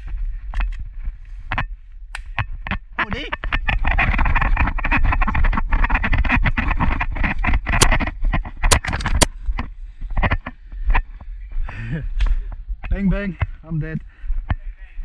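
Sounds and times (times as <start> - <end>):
sharp cracks: 1.5 - 9.3.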